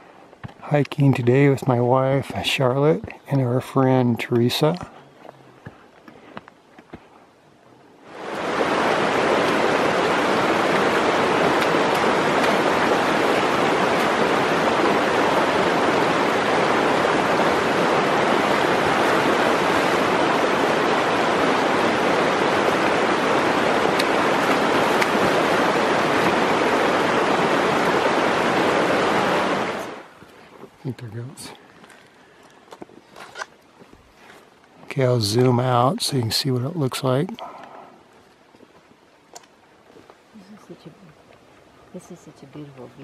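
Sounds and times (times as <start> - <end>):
creek rushing over stones: 8.0 - 30.4.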